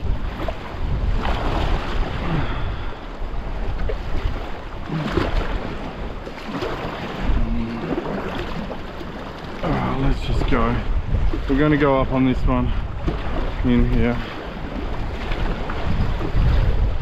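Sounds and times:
sea swell washing against rocks: 0:00.0 - 0:17.0
wind rumbling on microphone: 0:00.0 - 0:17.0.

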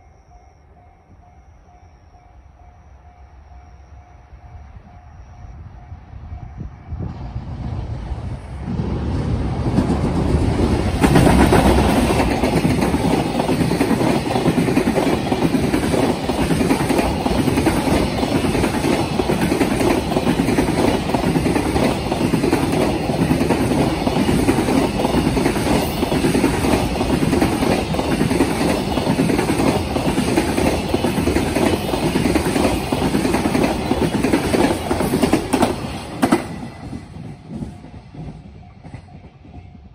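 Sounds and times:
freight train passing: 0:00.0 - 0:39.9
wheels clattering over rail joints: 0:08.9 - 0:38.4.

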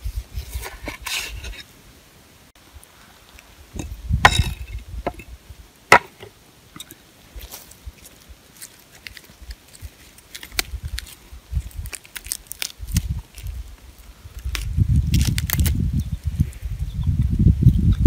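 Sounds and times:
knife scrapes: 0:00.4 - 0:01.7.

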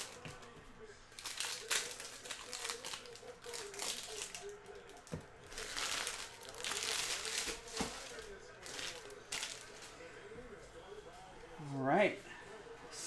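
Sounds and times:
plastic wrapping crinkling: 0:01.2 - 0:09.9.

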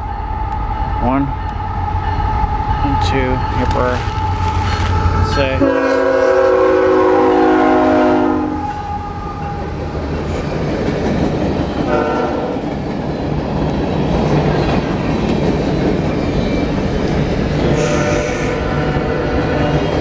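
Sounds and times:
freight train cars rumbling past: 0:00.0 - 0:20.0
locomotive horn chord: 0:05.2 - 0:08.8, 0:11.9 - 0:12.6, 0:17.7 - 0:19.9.

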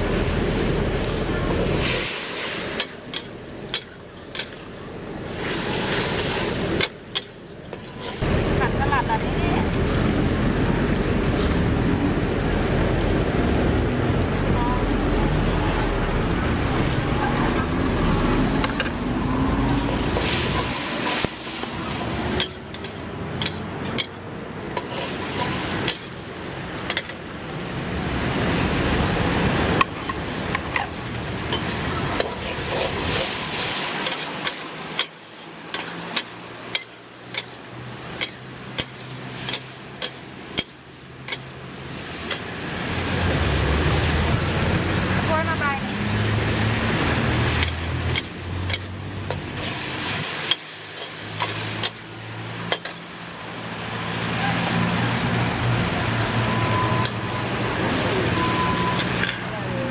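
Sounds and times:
spatula scraping a steel wok: 0:29.8 - 0:41.5, 0:47.3 - 0:52.0.

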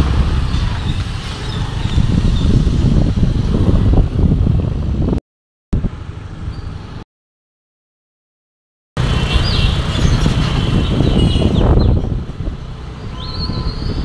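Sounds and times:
car road noise: 0:00.0 - 0:05.2, 0:09.0 - 0:14.0.

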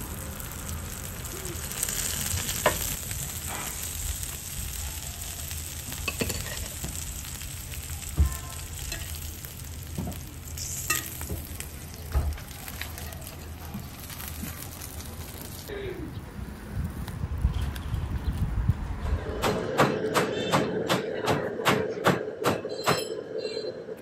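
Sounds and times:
oil sizzling on a griddle: 0:00.0 - 0:15.7.

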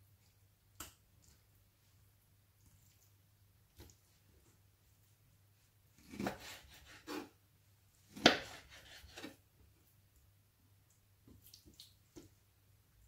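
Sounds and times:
soft slicing and rubbing: 0:06.0 - 0:07.4, 0:08.1 - 0:09.4.

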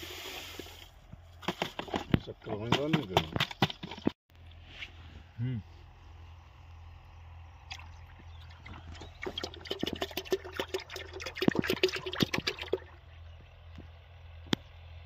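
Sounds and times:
thick liquid pouring into water: 0:07.7 - 0:13.2.

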